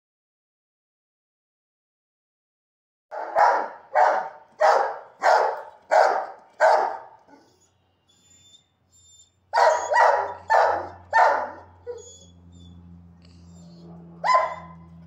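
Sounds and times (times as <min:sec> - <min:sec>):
dog barking: 0:03.1 - 0:07.6, 0:09.5 - 0:12.1, 0:13.6 - 0:15.0.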